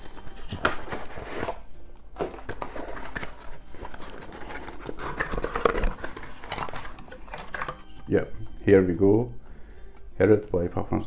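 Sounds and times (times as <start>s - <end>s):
cardboard box being unpacked: 0.0s - 1.6s, 2.2s - 7.8s
packaging rustling: 0.0s - 8.0s.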